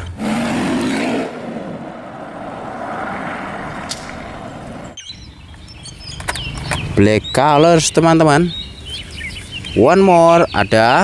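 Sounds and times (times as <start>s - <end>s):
sports car engine driving: 0.0s - 5.7s.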